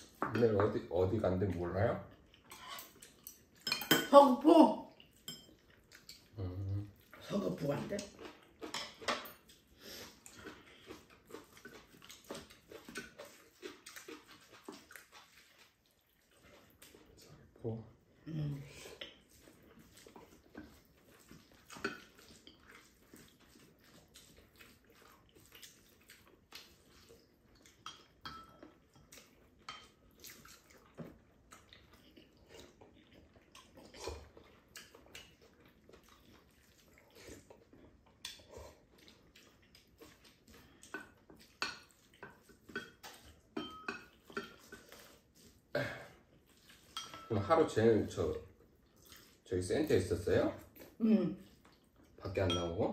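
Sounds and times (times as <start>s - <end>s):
spoons scraping ceramic bowls: 2.5s - 3.0s, 46.7s - 47.8s
eating sounds: 4.8s - 52.4s.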